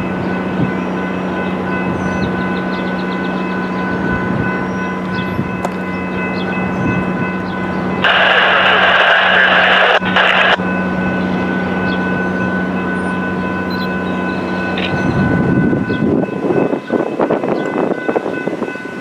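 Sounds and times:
train drone with held tones: 0.0 - 19.0
loud hissing rush: 8.0 - 10.6.

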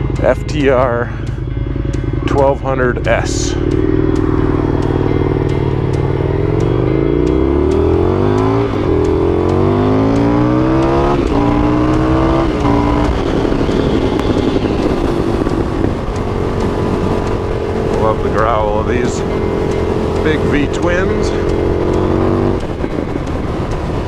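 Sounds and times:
motorcycle engine accelerating: 0.0 - 24.0
wind noise on microphone: 10.9 - 24.0.

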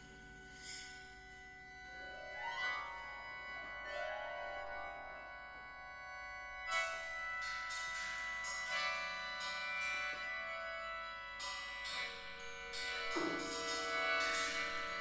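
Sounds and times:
chamber ensemble playing: 2.0 - 15.0
sharp struck attack: 13.1 - 13.6.

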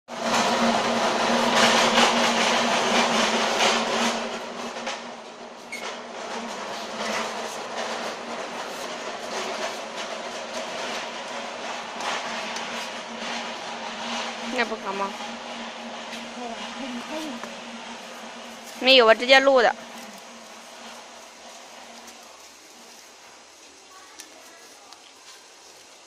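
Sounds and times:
steady hum: 0.1 - 26.0
rustle of foam sheet: 19.9 - 26.0.

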